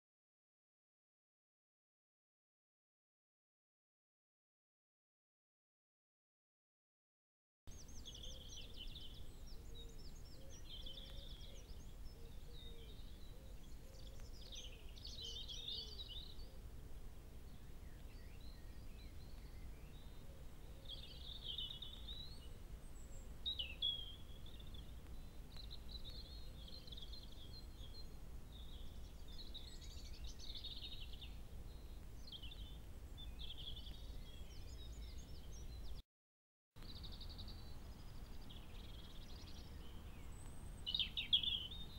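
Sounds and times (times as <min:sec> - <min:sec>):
songbirds singing and calling: 0:07.7 - 0:36.0, 0:36.8 - 0:41.9.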